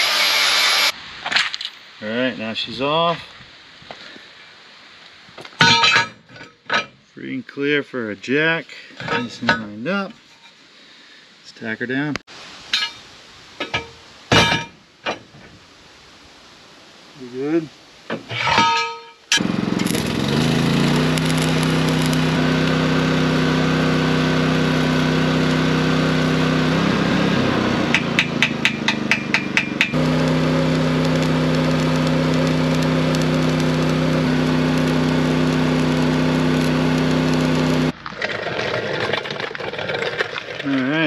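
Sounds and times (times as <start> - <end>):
arc welder humming and crackling: 19.3 - 38.0.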